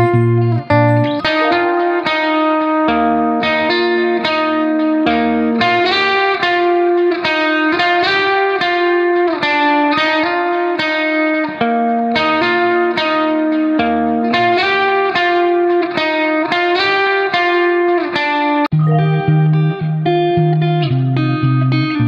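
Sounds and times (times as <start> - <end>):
background instrumental music: 0.0 - 5.4, 18.7 - 20.2.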